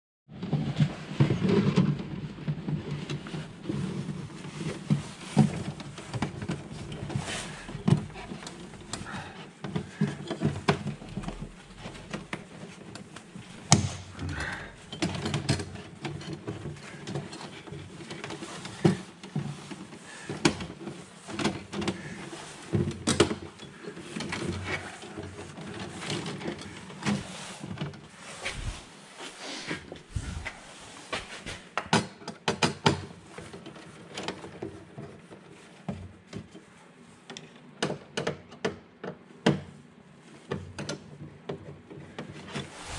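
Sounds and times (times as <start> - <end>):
electrical wires rustling and scraping: 0.3 - 31.8, 41.9 - 42.9.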